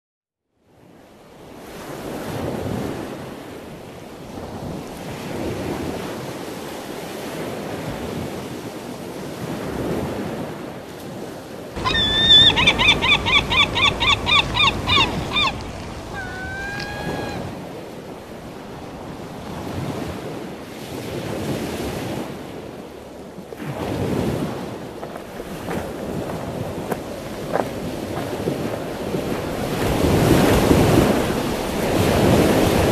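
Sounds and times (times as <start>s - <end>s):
ocean waves washing: 1.8s - 32.9s
bird calling sharp notes: 11.8s - 17.6s.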